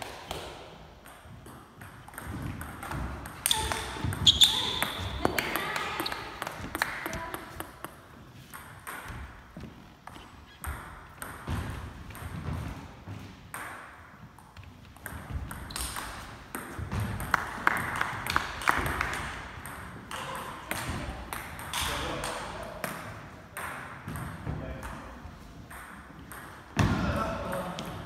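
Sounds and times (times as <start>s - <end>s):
table tennis ball hits: 15.0s - 25.0s.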